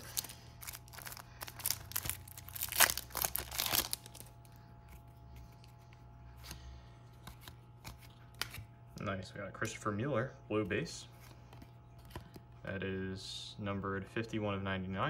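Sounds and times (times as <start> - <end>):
foil wrapper crinkling: 0.0 - 4.6
cards rustling and clicking: 0.0 - 8.7, 10.8 - 12.5.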